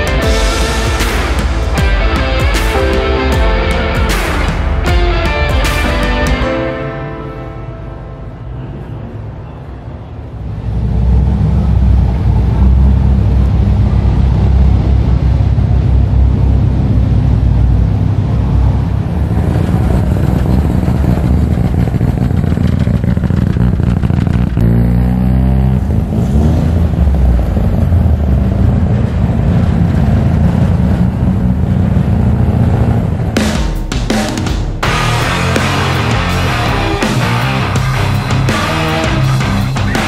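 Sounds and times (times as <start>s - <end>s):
car engine exhaust rumble: 10.1s - 33.4s
engine revving: 10.4s - 33.6s, 34.8s - 40.0s.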